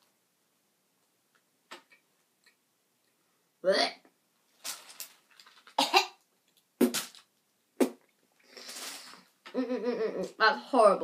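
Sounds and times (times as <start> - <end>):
woman coughing and gagging: 5.8 - 6.2.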